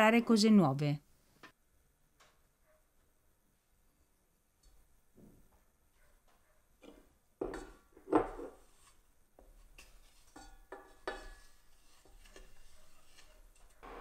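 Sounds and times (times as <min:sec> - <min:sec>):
spoon tapping in a pot: 0:06.9 - 0:07.8.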